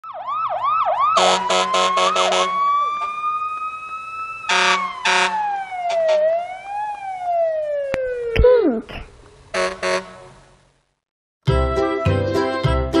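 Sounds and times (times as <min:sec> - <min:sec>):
electronic siren-like tone: 0:00.0 - 0:08.4, 0:09.6 - 0:10.2.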